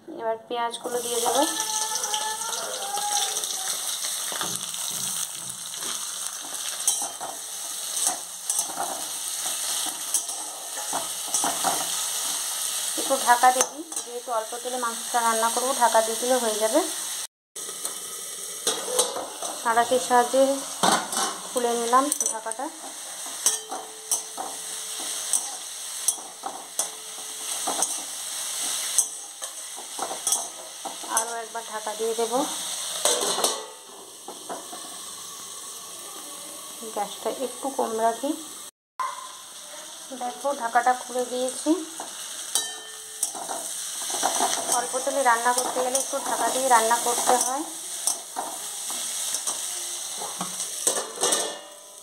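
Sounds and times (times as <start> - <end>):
onions sizzling in oil: 0.7 - 52.0
metal spatula scraping a pan: 1.0 - 14.2, 17.7 - 35.4, 42.0 - 52.0.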